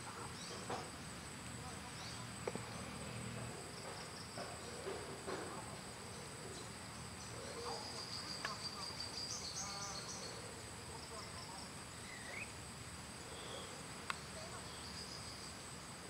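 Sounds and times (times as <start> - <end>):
high-pitched insect chorus: 0.0 - 16.0
pulsing insect trill: 0.0 - 16.0
single tick: 14.0 - 14.2.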